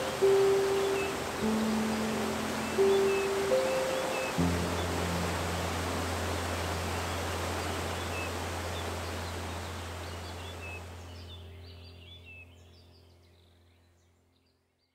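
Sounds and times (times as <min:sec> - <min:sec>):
high bird chirps: 0:00.0 - 0:05.1
rushing waterfall: 0:00.0 - 0:11.2.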